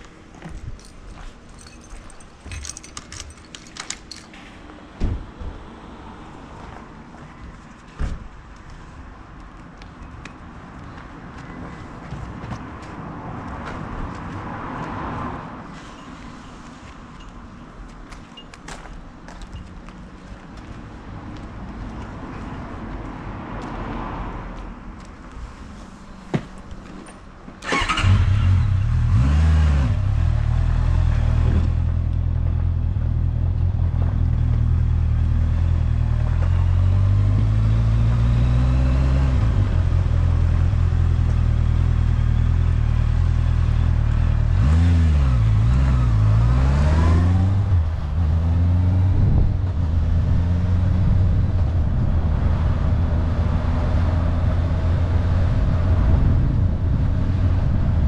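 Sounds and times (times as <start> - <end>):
motorcycle engine revving: 27.6 - 32.0.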